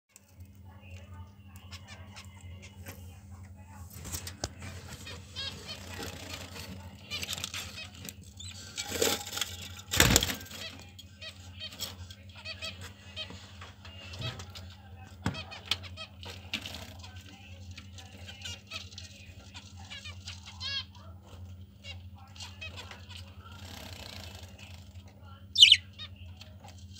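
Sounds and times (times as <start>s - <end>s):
budgerigars chirping: 25.6s - 26.1s.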